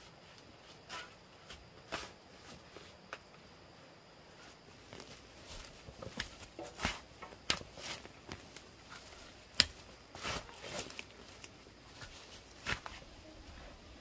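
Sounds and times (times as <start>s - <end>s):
knocks and scuffs: 11.9s - 13.1s.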